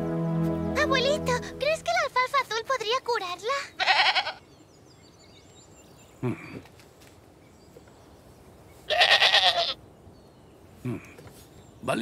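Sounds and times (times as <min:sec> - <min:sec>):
goat bleating: 0:03.8 - 0:04.4, 0:08.9 - 0:09.8
low grunt: 0:06.2 - 0:06.7, 0:10.8 - 0:11.2.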